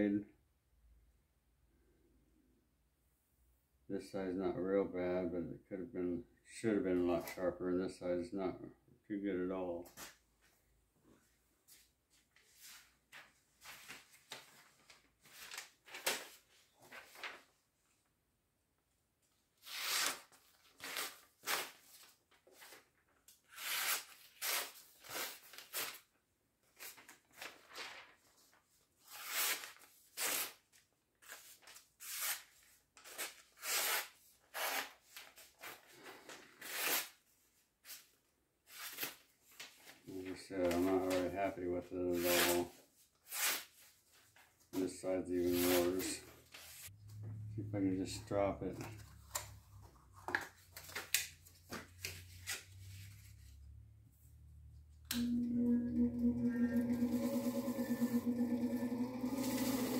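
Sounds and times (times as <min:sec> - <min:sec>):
knife slicing paper: 0:19.6 - 0:22.1, 0:23.5 - 0:26.0, 0:43.2 - 0:43.9.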